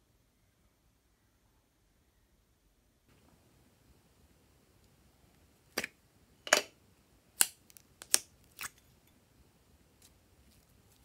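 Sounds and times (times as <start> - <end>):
plastic container clicks and snaps: 7.4 - 8.7.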